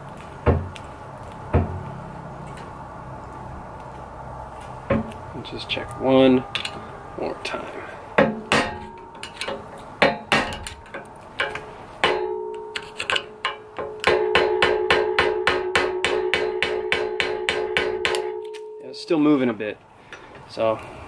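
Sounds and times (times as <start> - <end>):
metal ringing: 4.9 - 19.3.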